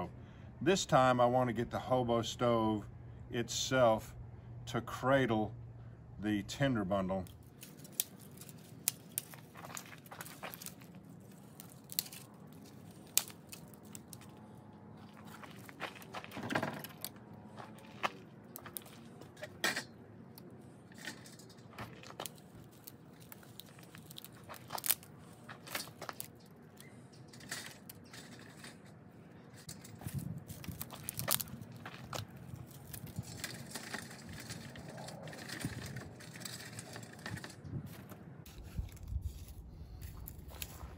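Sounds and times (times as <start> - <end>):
dry twigs snapping: 7.2 - 19.2, 21.7 - 26.8, 29.6 - 37.5.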